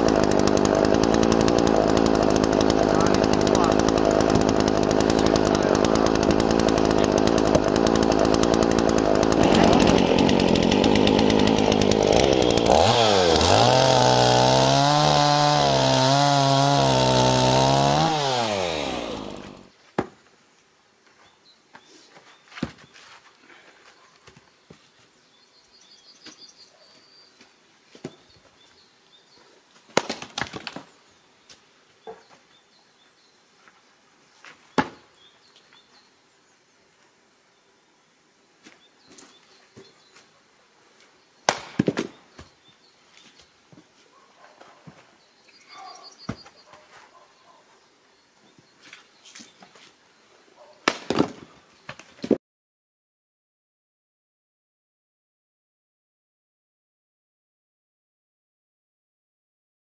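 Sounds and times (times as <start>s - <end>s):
chainsaw cutting log: 0.0s - 20.1s, 34.7s - 35.0s, 41.5s - 42.5s
axe splitting firewood: 0.0s - 20.2s, 30.0s - 30.9s, 34.7s - 35.0s, 41.5s - 42.5s, 50.8s - 52.4s.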